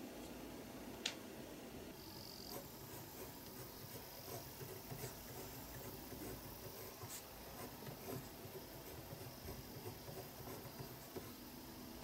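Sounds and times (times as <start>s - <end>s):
pen scratching on paper: 2.0s - 11.5s.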